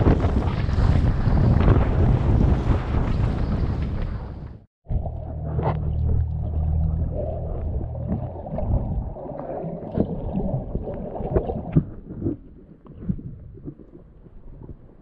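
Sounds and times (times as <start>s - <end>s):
low hum: 0.6s - 10.7s
underwater clicks and knocks: 4.9s - 15.0s
water rushing underwater: 4.9s - 15.0s.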